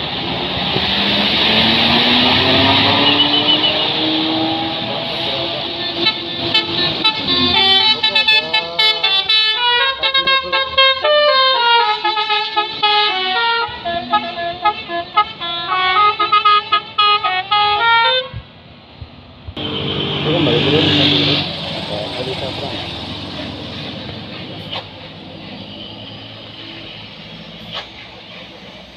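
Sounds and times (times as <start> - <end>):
multi-tone musical air horn: 2.1 - 18.4, 19.6 - 21.6.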